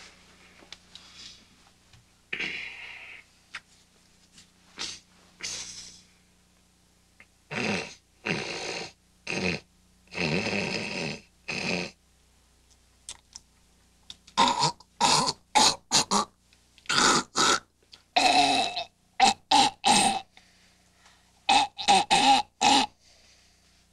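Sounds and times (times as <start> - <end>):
man snorting and clearing throat: 2.4 - 3.2, 4.8 - 6.0, 14.4 - 16.3, 18.2 - 20.3, 21.5 - 23.0.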